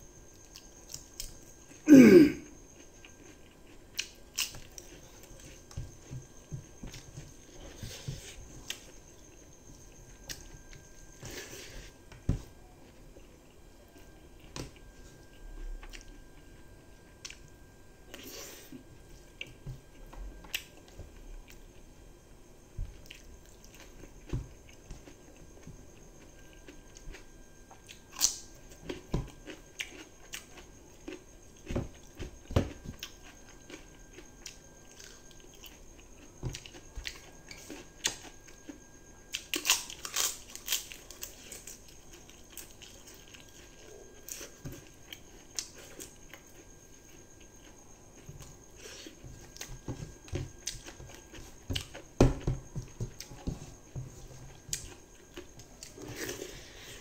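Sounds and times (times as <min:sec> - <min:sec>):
person chewing and smacking: 0:02.7 - 0:10.8, 0:22.8 - 0:56.3.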